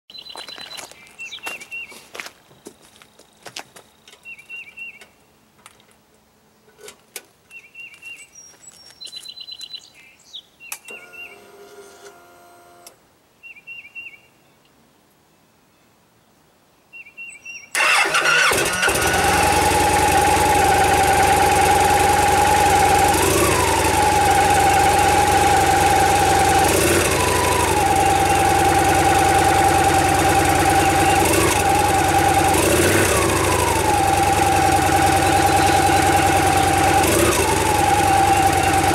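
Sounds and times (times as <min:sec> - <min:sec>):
birds chirping: 0:00.1 - 0:03.2, 0:03.8 - 0:05.9, 0:07.5 - 0:11.5, 0:23.3 - 0:38.9
motorcycle engine idling: 0:17.8 - 0:38.9.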